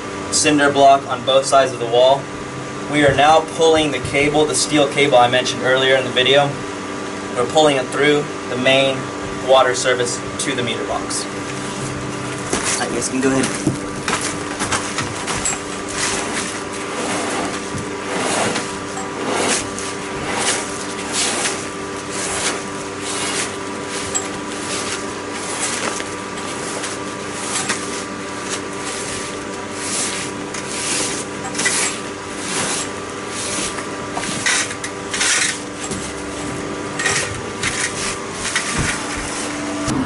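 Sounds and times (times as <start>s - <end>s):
steady hum: 0.0s - 40.0s
steel cable scraping in pipe: 14.8s - 35.6s.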